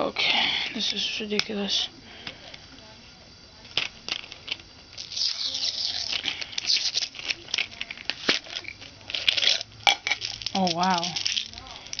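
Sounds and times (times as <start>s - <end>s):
plastic packaging crinkling: 4.1s - 12.0s.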